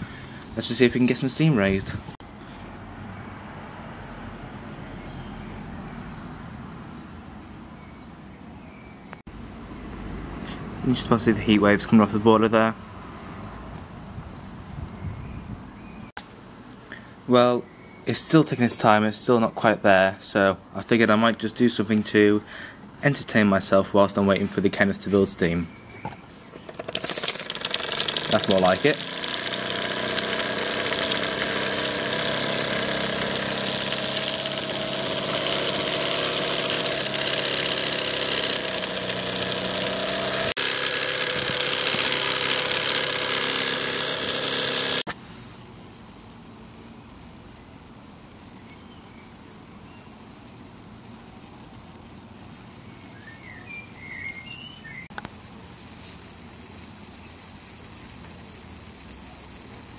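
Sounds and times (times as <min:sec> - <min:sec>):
model steam engine buzzing: 0:26.7 - 0:45.2, 0:55.2 - 0:59.9
low steady hiss: 0:45.1 - 0:59.9.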